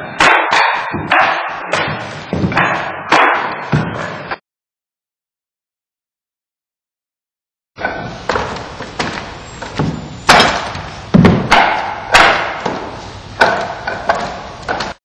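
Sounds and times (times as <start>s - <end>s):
strikes on wooden dummy: 0.1s - 4.1s, 7.8s - 15.0s.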